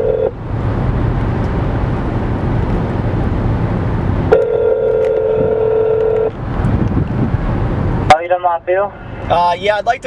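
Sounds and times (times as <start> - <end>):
phone ringback tone: 0.0 - 0.3, 4.3 - 6.3
car road noise: 0.0 - 10.0.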